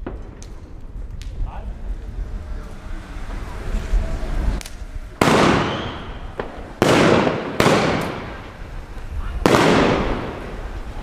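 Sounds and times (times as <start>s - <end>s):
fireworks bangs with echo: 0.0s - 1.5s, 5.2s - 11.0s.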